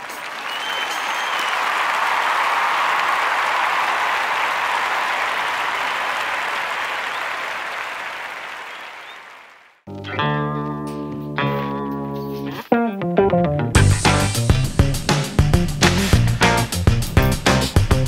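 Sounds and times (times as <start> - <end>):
crowd applause: 0.0 - 9.8
plucked guitar music: 9.9 - 18.0.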